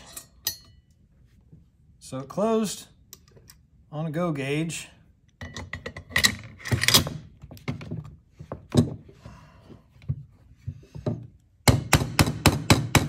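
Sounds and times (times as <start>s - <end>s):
metal bolt clicks and sliding rasp: 5.4s - 7.2s.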